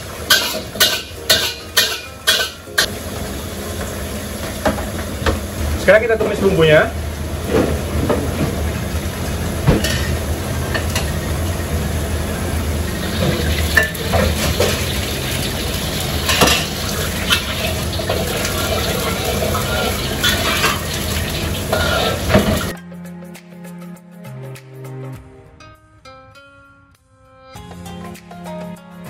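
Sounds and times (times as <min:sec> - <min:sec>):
spatula scraping a pan: 0:21.7 - 0:22.6.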